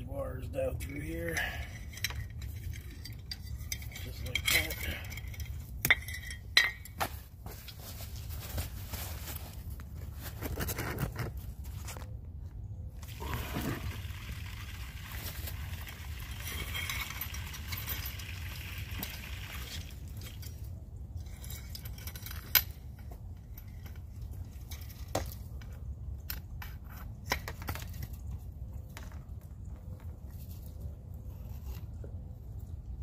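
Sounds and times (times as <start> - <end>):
rustling handling noise: 1.0 - 32.6.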